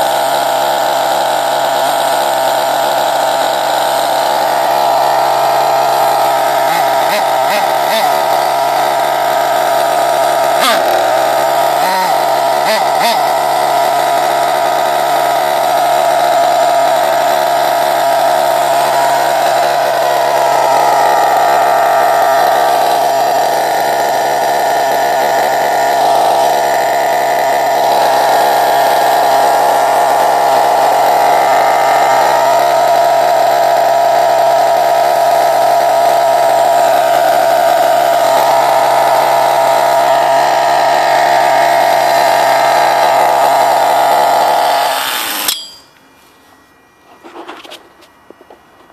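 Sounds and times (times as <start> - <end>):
small nitro engine idling: 0.0 - 48.9.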